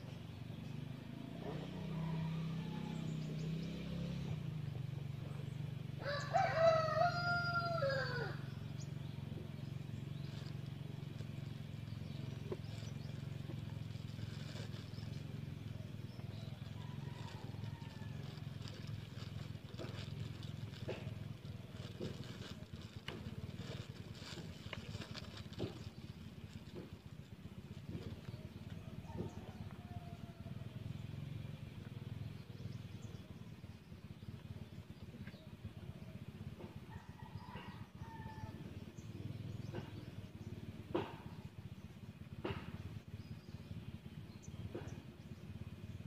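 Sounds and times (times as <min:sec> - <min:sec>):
rooster crowing: 0:06.0 - 0:08.5.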